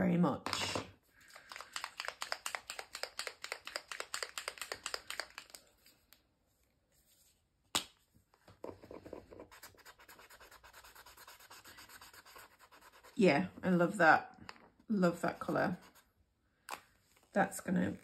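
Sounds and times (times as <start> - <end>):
paint marker ball rattling: 1.3 - 5.6
marker nib scribbling on paper: 8.8 - 13.2.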